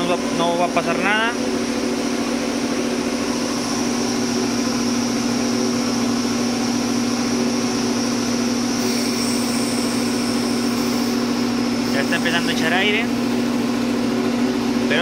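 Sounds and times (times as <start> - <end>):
air compressor running: 0.0 - 15.0.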